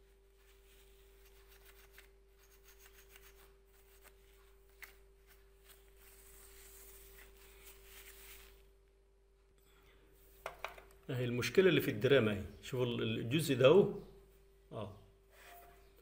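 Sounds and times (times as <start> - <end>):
tissue rubbing on metal wires: 0.0 - 8.8.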